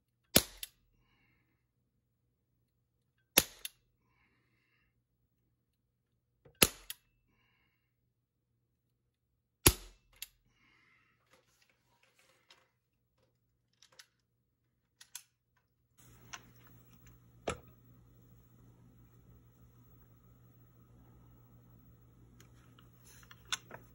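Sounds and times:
low hum: 0:16.0 - 0:23.9.

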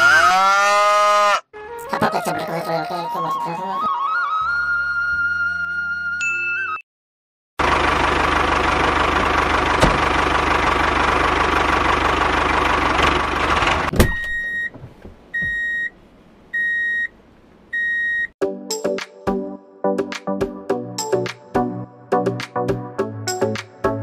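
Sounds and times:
music: 0:01.6 - 0:06.8, 0:18.4 - 0:24.0
tractor engine chugging: 0:07.6 - 0:14.3
reversing alarm beeps: 0:14.1 - 0:14.7, 0:15.4 - 0:15.9, 0:16.6 - 0:17.1, 0:17.8 - 0:18.3.

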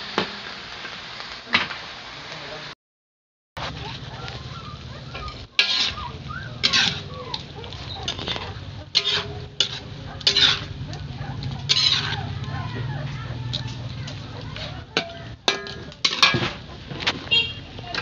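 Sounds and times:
metal spatula scraping wok: 0:03.6 - 0:18.0.

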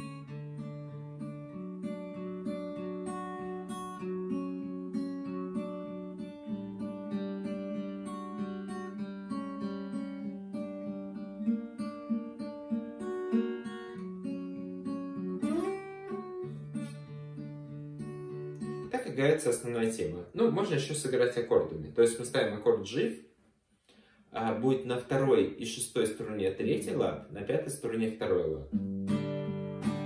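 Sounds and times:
fingerpicked acoustic guitar: 0:00.0 - 0:22.4, 0:27.8 - 0:30.0.

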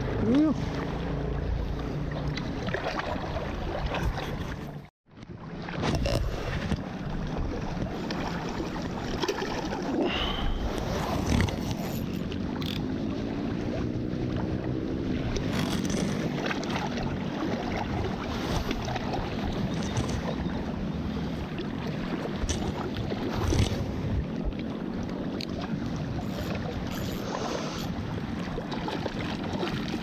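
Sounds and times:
waves lapping: 0:00.0 - 0:30.0
wind on microphone: 0:05.7 - 0:09.0, 0:09.6 - 0:30.0.

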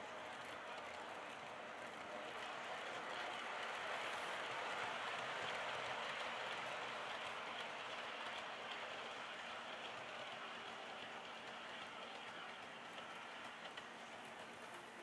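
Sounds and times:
model train rolling whirr: 0:00.0 - 0:15.0.

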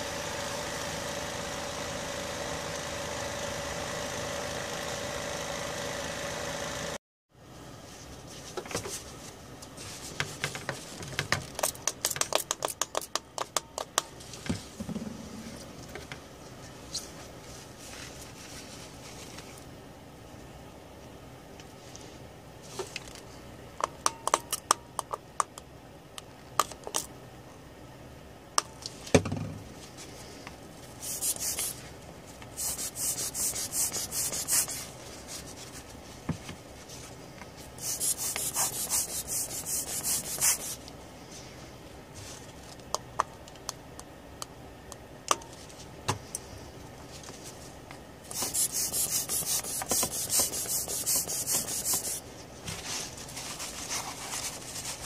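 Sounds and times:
cloth rubbing on circuit board: 0:31.0 - 0:31.8, 0:37.8 - 0:40.8.

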